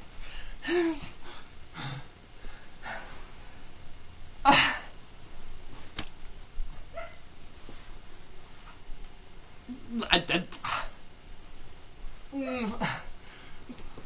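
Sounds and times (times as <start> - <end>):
man breathing heavily: 0.1 - 3.7, 12.8 - 13.8.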